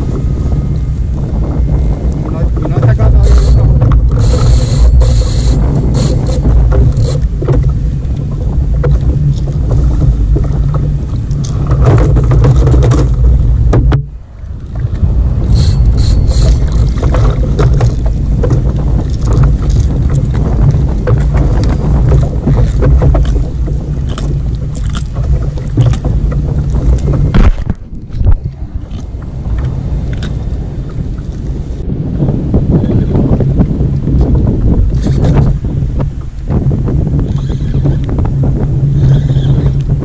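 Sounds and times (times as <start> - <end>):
wind buffeting microphone: 0.0 - 40.0
knocks from handling fishing gear: 8.4 - 14.1, 16.6 - 28.4.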